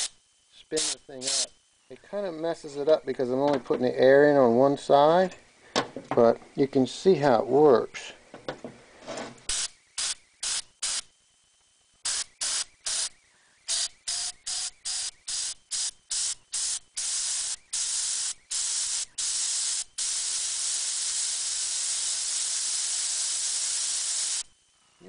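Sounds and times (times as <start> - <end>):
compressed air hissing: 0.0 - 1.6, 12.0 - 24.6.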